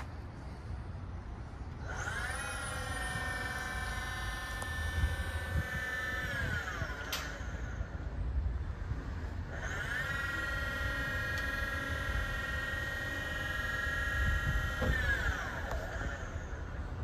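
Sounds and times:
hydraulic pump motor whining: 0.0 - 17.0
sharp click: 7.0 - 7.4.

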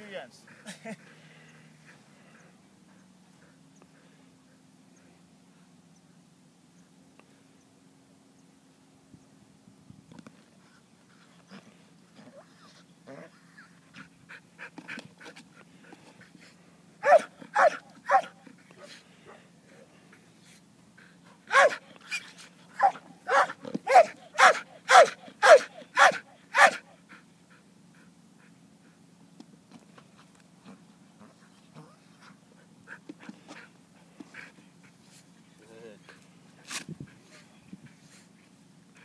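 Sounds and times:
dog barking: 17.0 - 18.3, 21.5 - 21.8, 22.8 - 26.8.

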